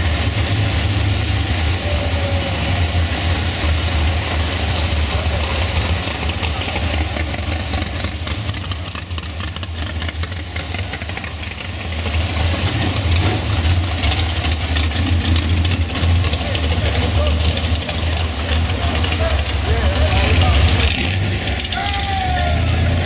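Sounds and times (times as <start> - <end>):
car engines rumbling past: 0.0 - 23.0.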